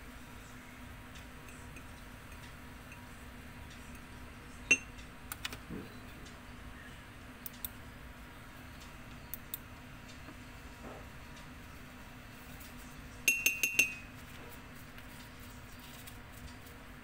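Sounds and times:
clinks of ceramic mug: 0:13.3 - 0:14.1.

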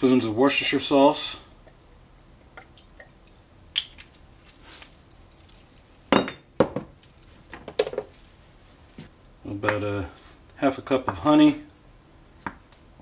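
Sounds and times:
soft hiss: 0:00.0 - 0:06.2
kitchenware clinking and knocking: 0:06.1 - 0:07.0.

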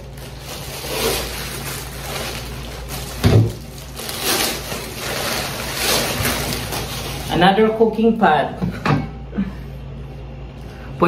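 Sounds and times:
plastic wrapping crinkling: 0:00.0 - 0:07.7.

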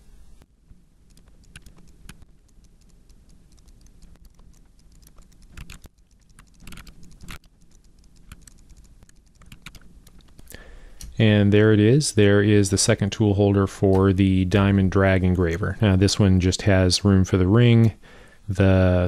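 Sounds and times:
mouse clicking: 0:01.0 - 0:11.2
keyboard keys tapping: 0:01.1 - 0:11.2.

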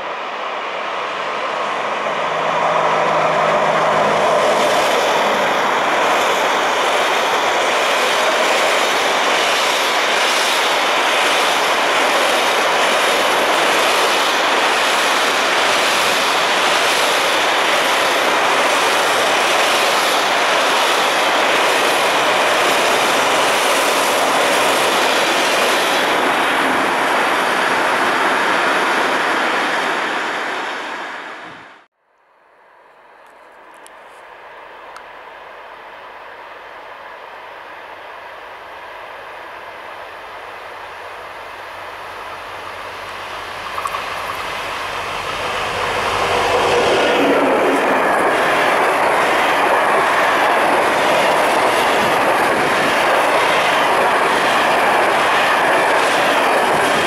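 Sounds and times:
electric locomotive passing: 0:00.0 - 0:31.8, 0:32.5 - 0:57.0.

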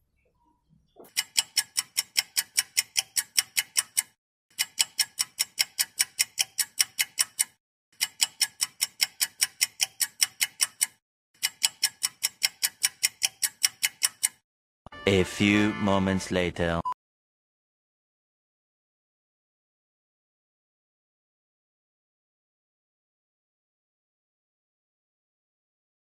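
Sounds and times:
clock ticking fast: 0:01.1 - 0:14.4.

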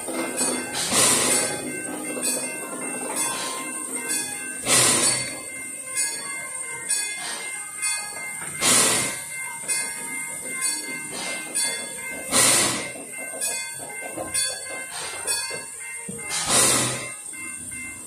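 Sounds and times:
steam locomotive puffing: 0:00.0 - 0:02.5, 0:03.1 - 0:05.5, 0:08.4 - 0:10.0, 0:11.0 - 0:15.4, 0:16.2 - 0:17.3.

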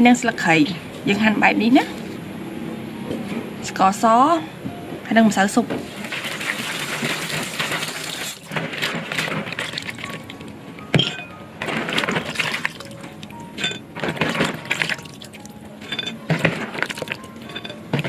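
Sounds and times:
light background music: 0:00.0 - 0:06.1, 0:09.5 - 0:18.0
water sloshing and splashing: 0:05.7 - 0:18.0.

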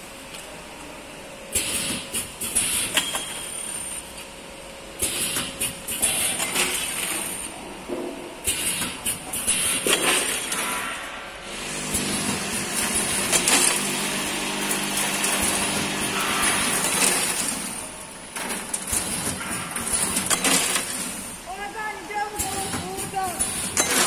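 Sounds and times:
steady motor hum: 0:00.0 - 0:23.9
packing machine clattering and clinking: 0:12.0 - 0:14.0, 0:14.8 - 0:21.4, 0:22.4 - 0:24.0.

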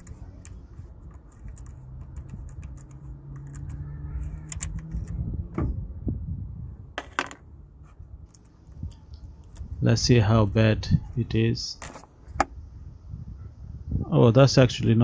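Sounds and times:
metal screw and key clicking: 0:00.0 - 0:05.2.

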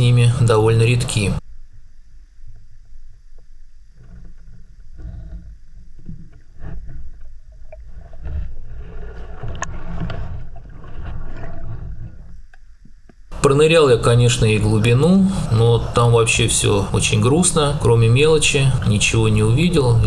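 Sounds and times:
underwater rumble of water movement: 0:01.5 - 0:13.1.

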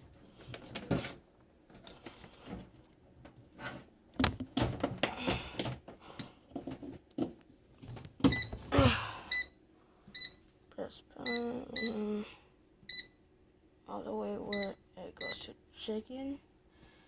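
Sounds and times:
knocks and clatter of handling: 0:00.3 - 0:08.6
air fryer electronic beep: 0:08.3 - 0:08.6, 0:09.3 - 0:09.6, 0:10.2 - 0:10.4, 0:11.3 - 0:12.0, 0:12.9 - 0:13.2, 0:14.5 - 0:15.4.

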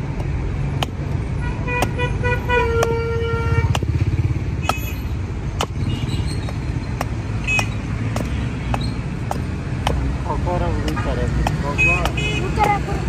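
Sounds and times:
hatchet chopping wood: 0:00.0 - 0:13.0
street traffic: 0:00.0 - 0:13.0
car horn: 0:01.4 - 0:03.8, 0:04.6 - 0:05.0, 0:11.0 - 0:12.7.

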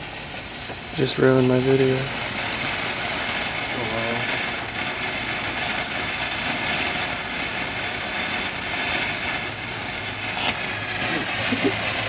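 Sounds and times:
firework fountain hissing: 0:00.0 - 0:12.0.

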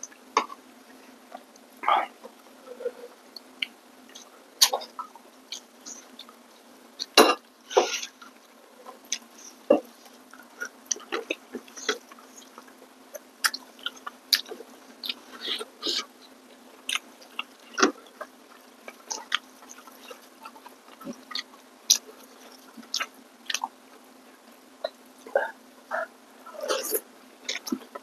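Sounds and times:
chewing with mouth smacks: 0:07.0 - 0:16.1, 0:16.8 - 0:23.8, 0:24.8 - 0:28.0.

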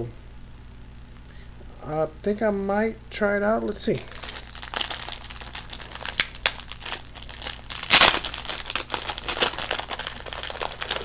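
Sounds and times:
plastic packaging crinkling: 0:04.0 - 0:11.0.

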